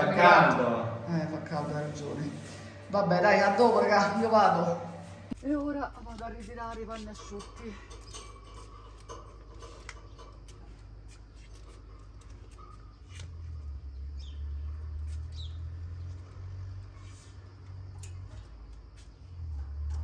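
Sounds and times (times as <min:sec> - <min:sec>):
bird chirps: 0:13.9 - 0:16.1.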